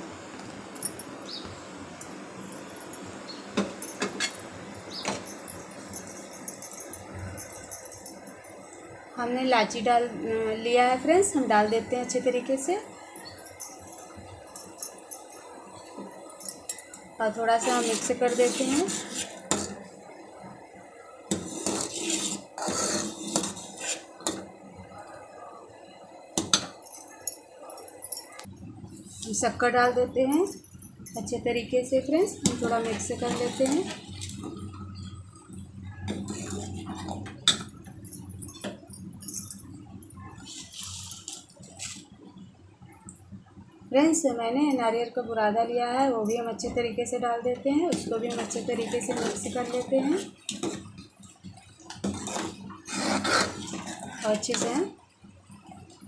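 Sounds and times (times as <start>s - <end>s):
pot simmering with steady hiss: 0.0s - 26.8s, 27.4s - 56.0s
metal ladle scraping a pot: 17.6s - 19.8s, 21.3s - 24.4s, 32.2s - 35.2s, 36.1s - 37.6s, 47.9s - 50.9s, 51.9s - 54.8s.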